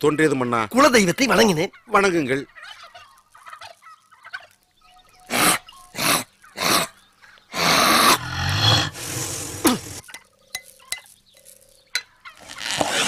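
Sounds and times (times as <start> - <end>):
man blowing hard through lips: 7.5 - 10.0.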